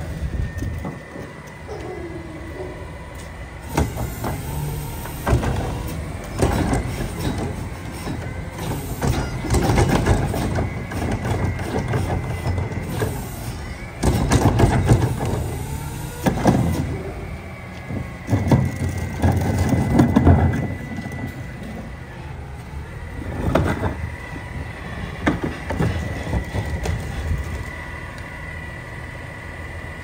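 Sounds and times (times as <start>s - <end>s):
diesel engine running: 0.0s - 30.0s
carts banging against hopper: 3.7s - 13.2s, 14.0s - 15.5s, 18.0s - 21.4s.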